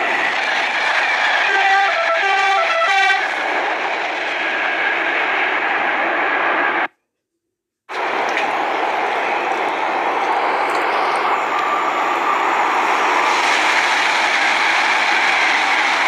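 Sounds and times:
train rolling: 0.0s - 6.9s, 7.9s - 16.0s
train horn: 1.4s - 3.4s.

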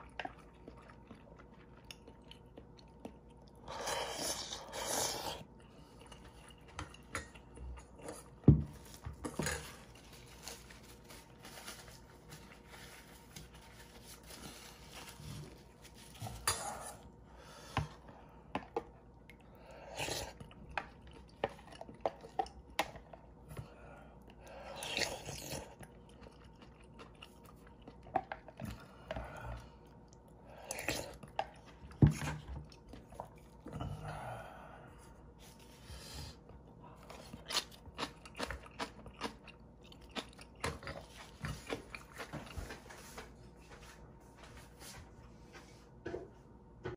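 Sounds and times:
chewing noodles: 0.0s - 8.4s, 19.1s - 34.1s, 37.0s - 42.8s.

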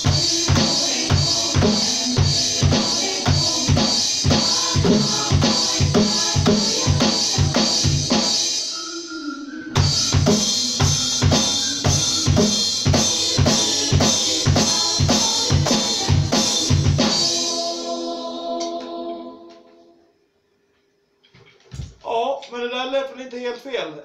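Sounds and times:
electronic drum kit beat: 0.0s - 8.7s, 9.8s - 18.5s
tv theme music: 0.0s - 19.5s.

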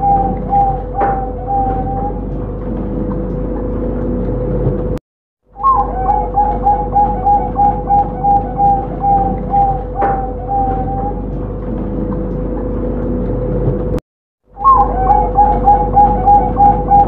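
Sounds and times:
dove cooing: 0.0s - 2.4s, 5.6s - 11.4s, 14.6s - 17.0s
steady hum: 0.0s - 5.0s, 5.6s - 14.0s, 14.6s - 17.0s.

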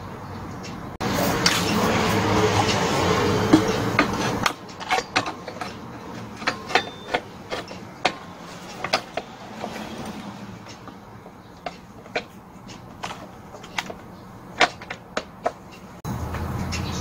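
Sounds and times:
plastic and metal parts clicking: 3.5s - 11.0s, 11.6s - 16.0s.

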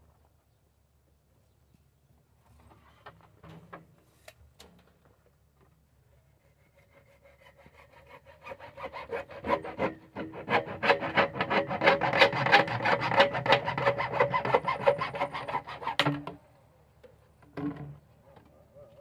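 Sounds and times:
hand saw cutting plastic pipe: 6.5s - 16.4s.

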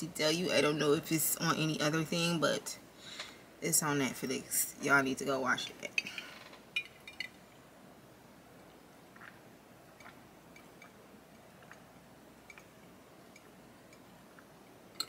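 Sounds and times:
person gulping drink: 9.1s - 11.9s.

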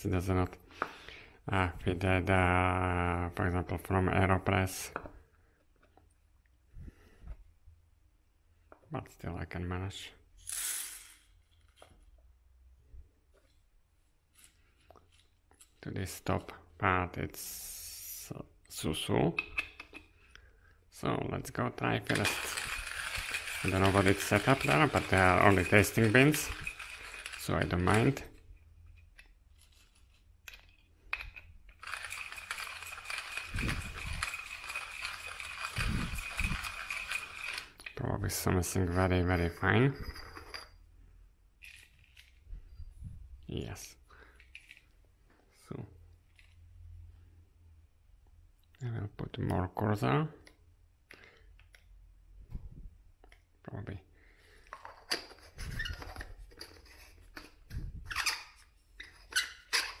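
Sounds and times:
hand grinder crunching coffee beans: 22.0s - 28.4s, 31.7s - 38.0s.

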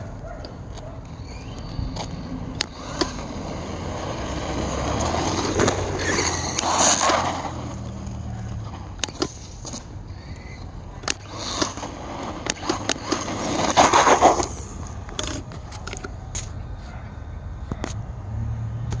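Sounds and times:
rc truck rushing scrape: 1.2s - 10.6s, 11.2s - 15.5s.

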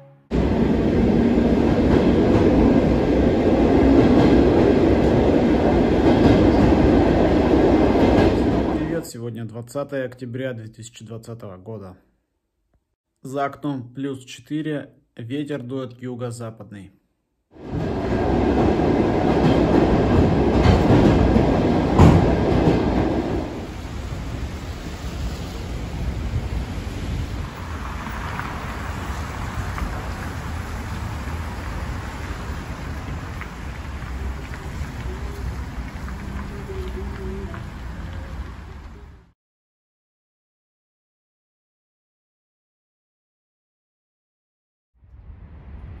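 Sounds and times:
train wheels on track: 0.4s - 9.0s, 17.6s - 26.8s, 27.4s - 39.1s
sharp knock: 22.0s - 22.3s.

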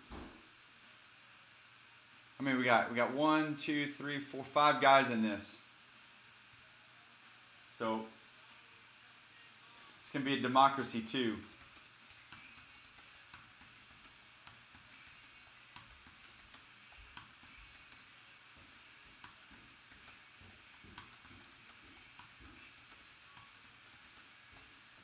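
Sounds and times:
small irregular clicks: 11.5s - 25.0s.

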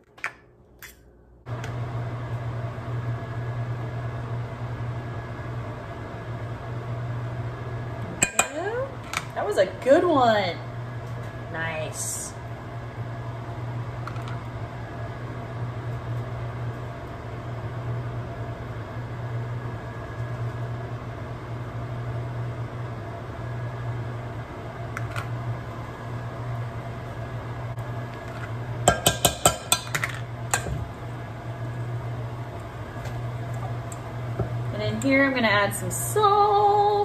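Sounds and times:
steady low hum: 0.4s - 37.0s
metal spoon knocking on steel bowl: 28.9s - 29.9s.

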